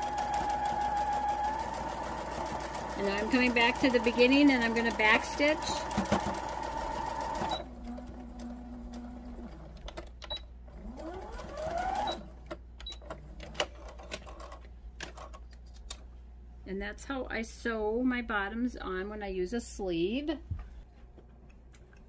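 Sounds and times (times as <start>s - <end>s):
sewing machine whine: 0.0s - 9.7s, 10.7s - 12.3s
sewing machine stitching: 0.0s - 10.0s, 10.8s - 12.3s.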